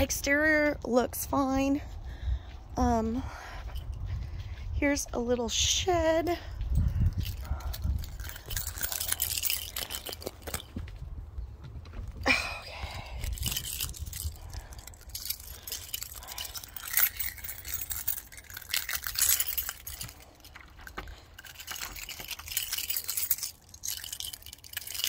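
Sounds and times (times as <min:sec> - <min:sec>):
metal keys jangling: 0:05.9 - 0:10.9, 0:12.3 - 0:25.0
key in deadbolt lock: 0:07.0 - 0:10.8, 0:13.1 - 0:25.0.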